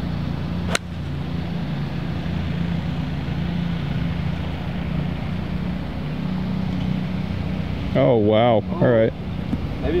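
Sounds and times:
low mechanical hum: 0.0s - 10.0s
golf club striking ball: 0.6s - 1.3s.

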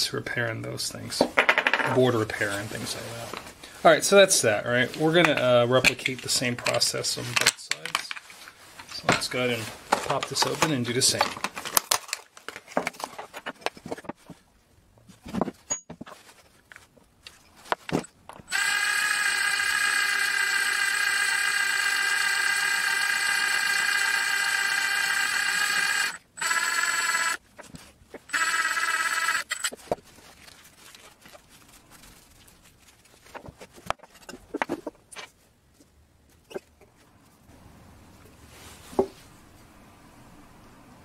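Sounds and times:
clicks and crinkling of handling: 4.9s - 14.4s, 15.0s - 18.5s, 29.6s - 37.1s
cordless drill whining: 18.5s - 27.4s, 28.3s - 29.8s.

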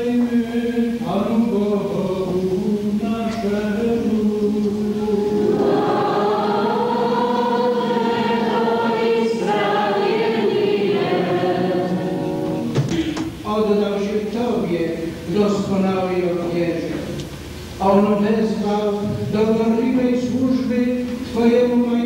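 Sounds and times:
choir singing slow chant: 3.8s - 12.8s.

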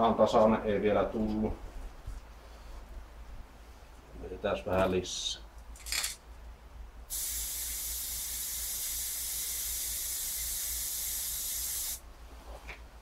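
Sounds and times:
spray can hissing: 7.1s - 12.0s.

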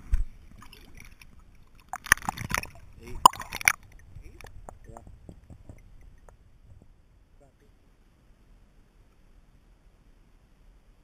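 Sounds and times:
water splashing: 0.3s - 7.0s
underwater bubbling: 0.3s - 7.2s
muffled underwater ticks: 1.8s - 6.9s.

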